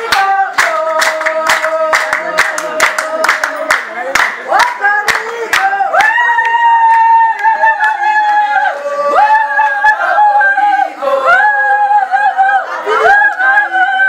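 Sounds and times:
hand claps: 0:00.0 - 0:08.4
women singing high held notes: 0:00.0 - 0:14.0.

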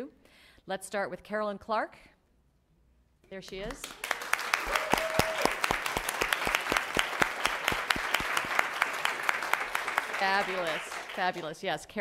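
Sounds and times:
audience applauding: 0:03.8 - 0:11.5.

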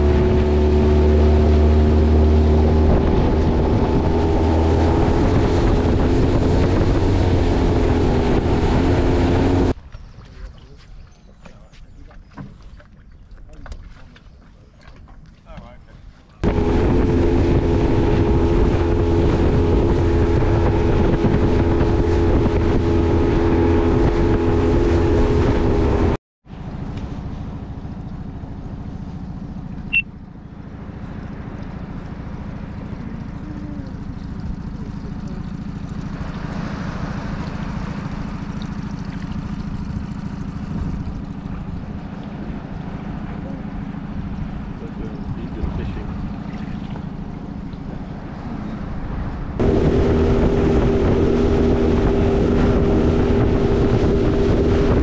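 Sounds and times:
outboard motor running: 0:00.0 - 0:55.0
wind and water noise: 0:00.0 - 0:55.0
low rumble: 0:16.4 - 0:55.0.

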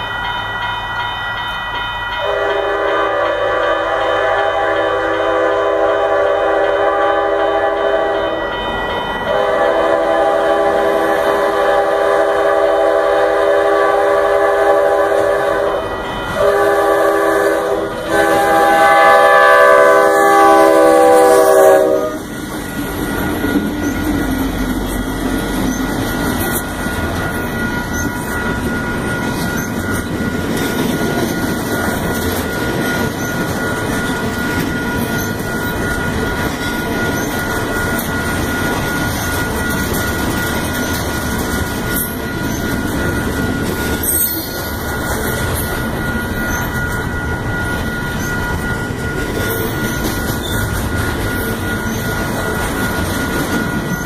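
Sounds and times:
locomotive air horn blasts: 0:02.2 - 0:08.4, 0:09.3 - 0:22.2
freight cars rumbling and clacking: 0:22.2 - 0:54.0.

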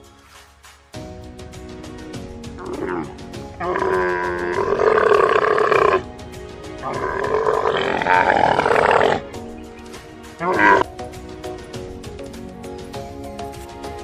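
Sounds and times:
music with steady beat: 0:00.0 - 0:14.0
camel bellowing: 0:02.6 - 0:06.1, 0:06.8 - 0:09.4, 0:10.4 - 0:10.9.

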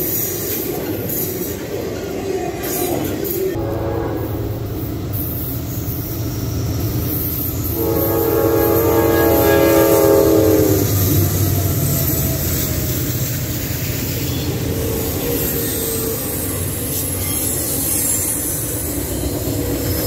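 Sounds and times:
train wheels: 0:00.0 - 0:20.0
locomotive rumble: 0:00.3 - 0:20.0
locomotive air horn blast: 0:03.6 - 0:04.8, 0:07.6 - 0:11.2.

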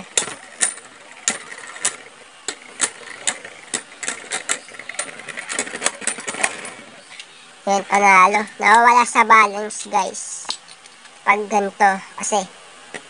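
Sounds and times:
spinning tops clacking together: 0:00.0 - 0:06.9
spinning tops hissing on plastic: 0:00.0 - 0:09.0.

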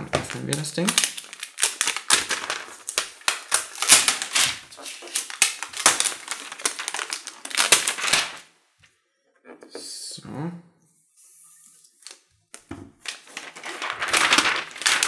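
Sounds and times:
plastic film crackling: 0:00.0 - 0:08.5, 0:13.0 - 0:15.0.

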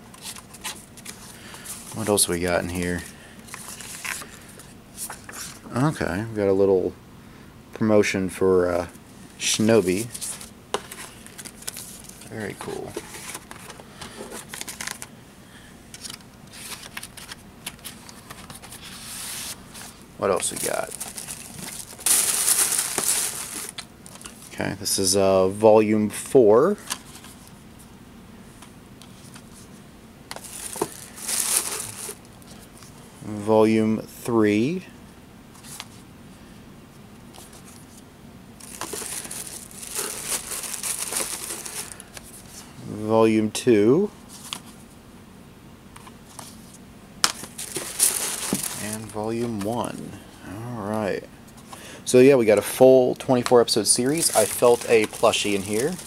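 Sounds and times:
dvd cases and paper rustling: 0:00.0 - 0:05.7, 0:09.5 - 0:15.2, 0:15.9 - 0:24.6, 0:30.3 - 0:33.0, 0:38.6 - 0:42.6, 0:46.0 - 0:50.0, 0:51.6 - 0:56.0.

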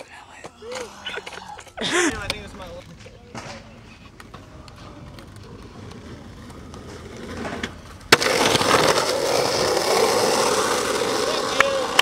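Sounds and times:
skateboard wheels rolling on pavement: 0:00.0 - 0:12.0
skateboard landing crack: 0:02.2 - 0:12.0.

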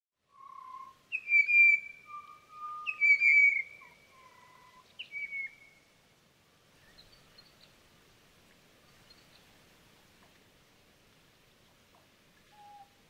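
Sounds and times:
whistled bird calls: 0:00.3 - 0:05.9, 0:12.5 - 0:13.0.

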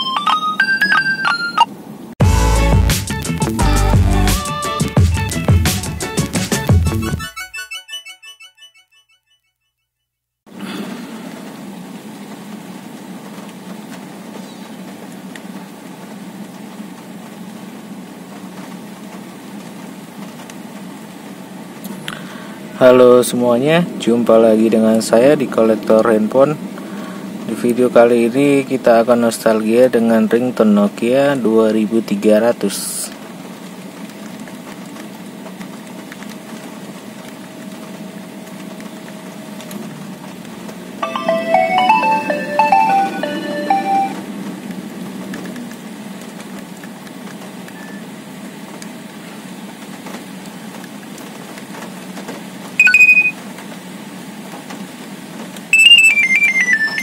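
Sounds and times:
thin steady tone: 0:52.8 - 0:53.3, 0:55.8 - 0:57.0.

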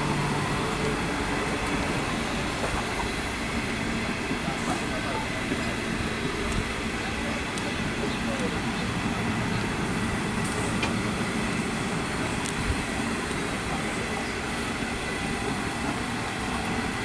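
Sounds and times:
train wheels rumbling on rails: 0:00.0 - 0:17.0
faint rail clicks: 0:04.1 - 0:08.9, 0:10.4 - 0:11.6, 0:12.2 - 0:14.8.

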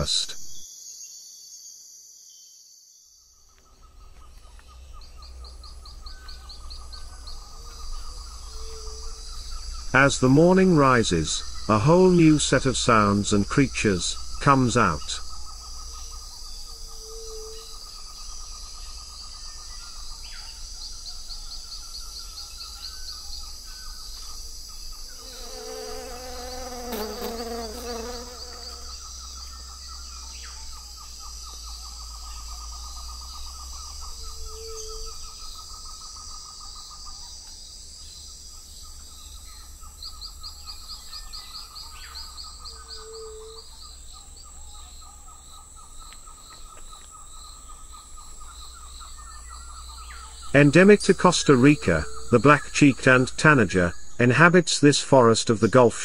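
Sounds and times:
insects buzzing and trilling: 0:00.0 - 0:56.0
bird calling: 0:25.0 - 0:37.6, 0:38.3 - 0:54.4.

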